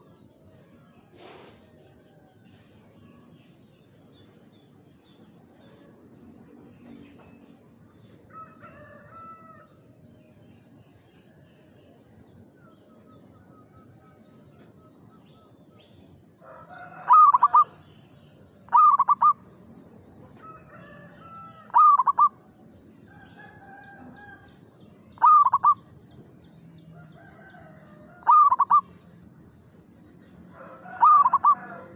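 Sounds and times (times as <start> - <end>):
dove cooing: 16.7 - 17.8, 18.7 - 19.4, 21.6 - 22.4, 25.2 - 25.8, 28.2 - 28.9, 30.6 - 31.9.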